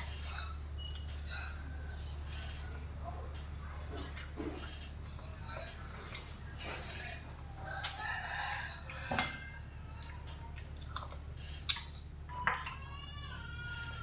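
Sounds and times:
person chewing: 10.6 - 12.1.

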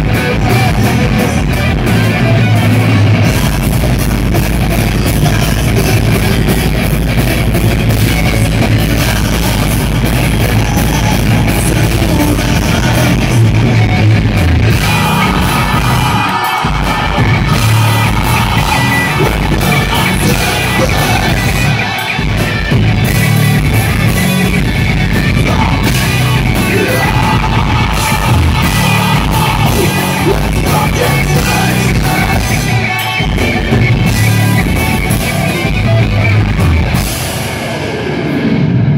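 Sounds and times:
bass guitar: 0.0 - 38.9
distorted electric guitars: 0.0 - 38.9
drum kit: 0.0 - 38.9
person singing into microphone: 14.7 - 22.1, 25.3 - 33.0.

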